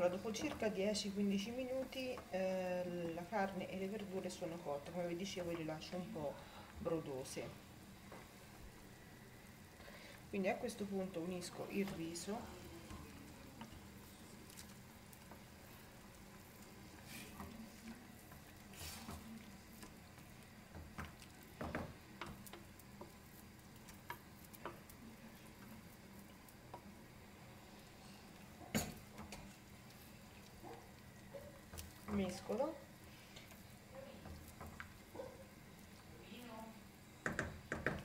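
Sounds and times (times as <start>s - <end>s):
rice patter and spoon scraping: 13.0s - 27.0s
spoon knocking against pan: 37.2s - 38.0s.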